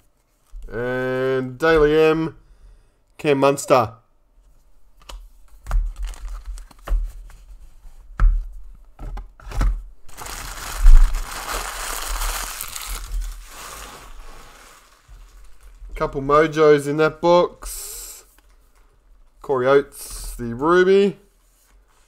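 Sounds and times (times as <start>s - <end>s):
wrapper tearing and crinkling: 5.9s - 6.7s, 10.1s - 15.8s.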